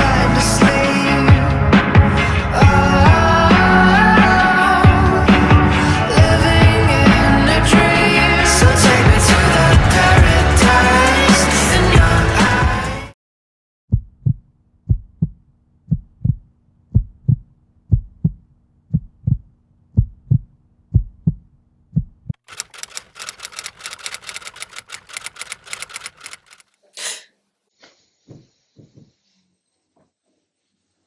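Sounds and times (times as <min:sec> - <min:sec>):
heartbeat thumps: 0:13.9 - 0:22.4
rapid even clicking: 0:22.4 - 0:26.8.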